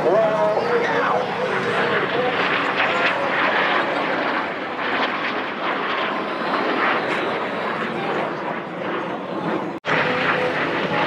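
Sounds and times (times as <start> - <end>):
aircraft engines in flight: 0.0 - 11.0.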